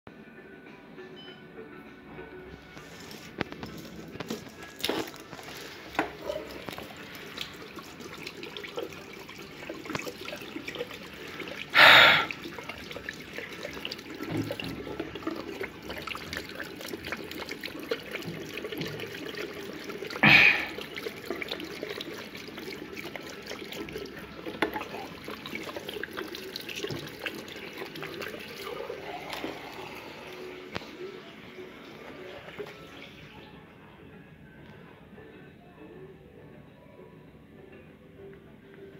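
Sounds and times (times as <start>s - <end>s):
tap water running into basin: 2.8s - 33.4s.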